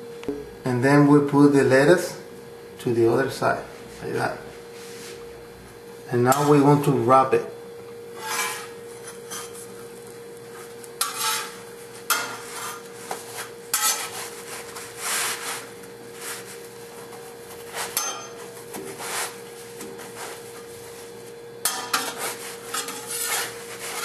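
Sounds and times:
steady hum: 0:00.0 - 0:24.0
metal spatula scraping griddle: 0:08.2 - 0:09.7, 0:11.0 - 0:16.6, 0:21.6 - 0:24.0
tortilla rustling: 0:09.5 - 0:21.4.

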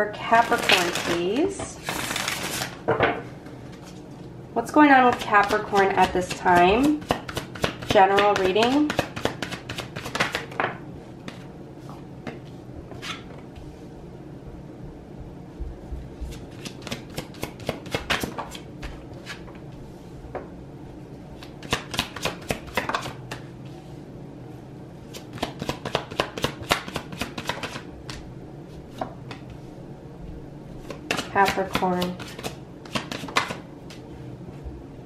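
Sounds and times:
cards being shuffled: 0:00.4 - 0:02.8, 0:07.0 - 0:10.6, 0:16.3 - 0:19.5, 0:21.4 - 0:23.5, 0:25.1 - 0:28.2, 0:30.8 - 0:34.0.

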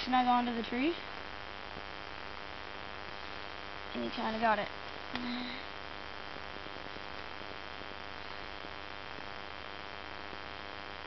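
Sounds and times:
steady hiss: 0:00.0 - 0:11.0.

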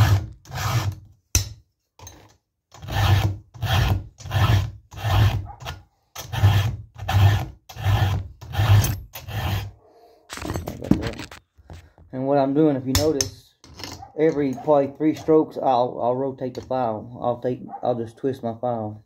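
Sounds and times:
file strokes on chainsaw chain: 0:02.8 - 0:09.7.

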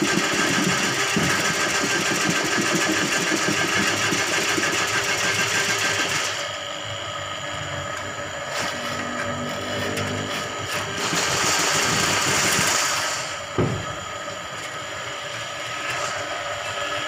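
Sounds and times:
drain-cleaning machine churning water: 0:00.0 - 0:17.0
sharp knock: 0:13.6 - 0:14.0.

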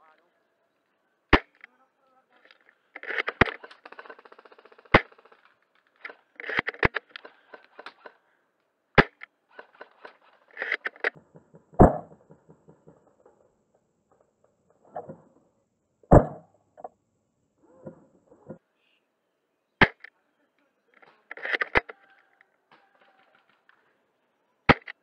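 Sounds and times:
rifle bolt clicks and rattles: 0:02.4 - 0:08.2, 0:09.0 - 0:11.2, 0:21.0 - 0:22.3
airsoft rifle firing snaps: 0:03.0 - 0:08.1.

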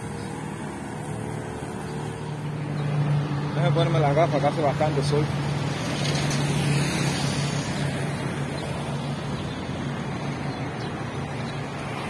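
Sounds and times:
street noise: 0:00.0 - 0:12.0.

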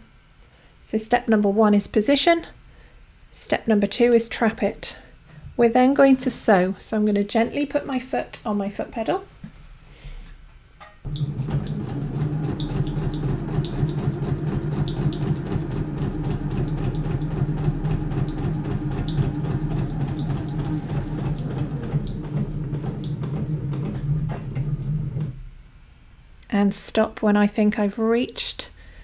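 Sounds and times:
sewing machine running: 0:11.1 - 0:25.4.

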